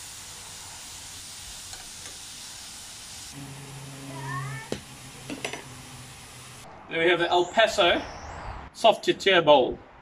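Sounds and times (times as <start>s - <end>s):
seafood sizzling in oil: 0.0s - 6.6s
low steady hum: 3.4s - 6.7s.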